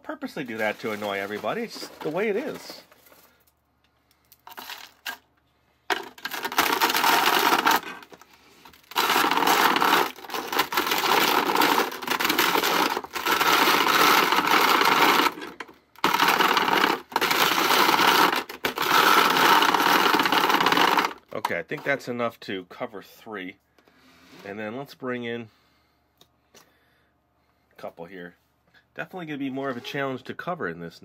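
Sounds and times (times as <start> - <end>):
plastic grinder crushing cereal: 0.1 - 3.4, 4.2 - 5.3, 5.9 - 22.0.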